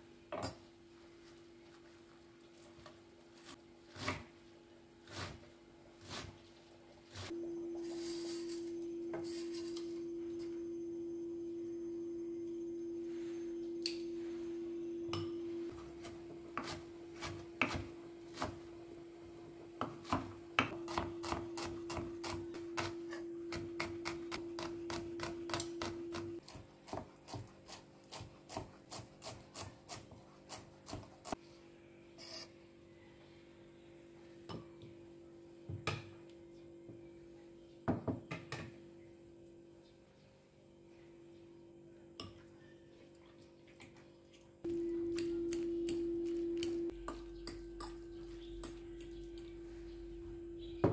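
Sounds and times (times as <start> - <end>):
low hum: 7.4 - 17.1, 44.7 - 50.9
knife chopping on wooden board: 16.0 - 18.6.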